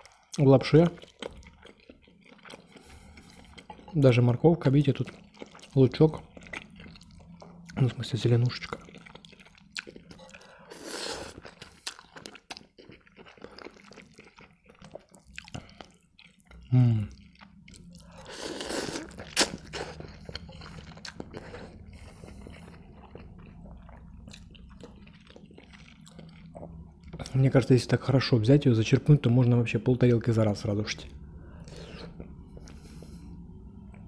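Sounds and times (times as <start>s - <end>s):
wet chewing and smacking: 0.0s - 10.6s, 11.2s - 27.6s
person humming: 16.7s - 17.1s
noodles slurped: 18.2s - 22.8s.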